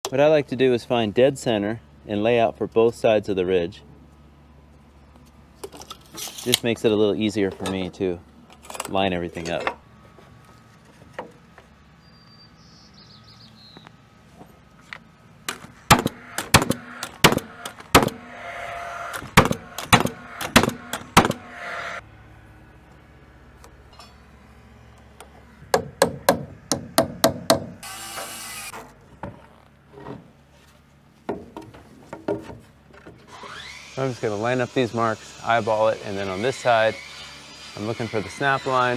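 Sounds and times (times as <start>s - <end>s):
nail gun firing into wood: 15.5s - 18.3s, 19.1s - 21.5s.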